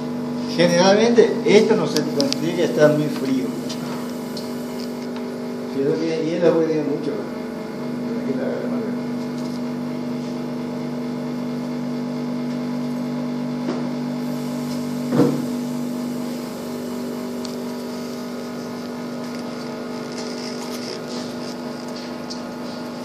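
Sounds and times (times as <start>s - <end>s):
electric motor hum: 0.0s - 23.0s
sharp knock: 15.1s - 15.5s.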